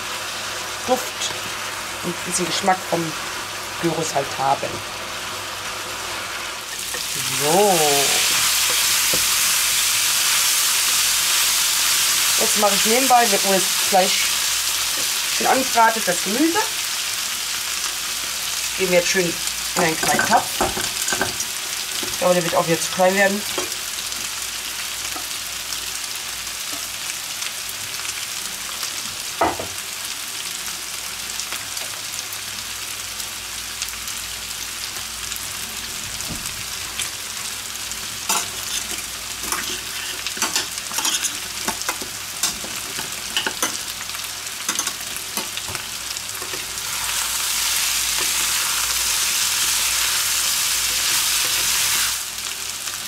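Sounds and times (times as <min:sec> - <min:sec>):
meat sizzling in a frying pan: 0:00.0 - 0:53.0
utensils clinking against pot: 0:19.8 - 0:21.4, 0:38.3 - 0:43.8, 0:44.7 - 0:45.6.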